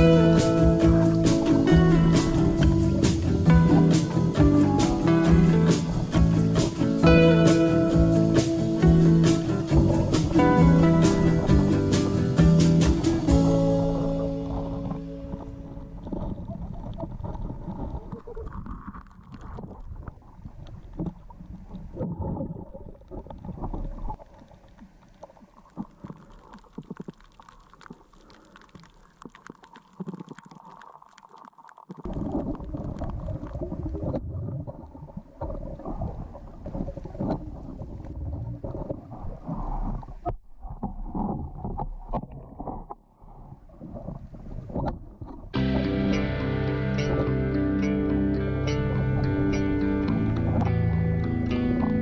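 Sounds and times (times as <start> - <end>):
underwater water rumbling: 0.0 - 52.0.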